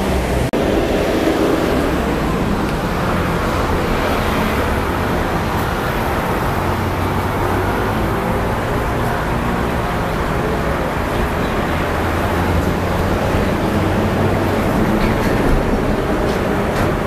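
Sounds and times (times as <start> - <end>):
street traffic: 0.0 - 17.0.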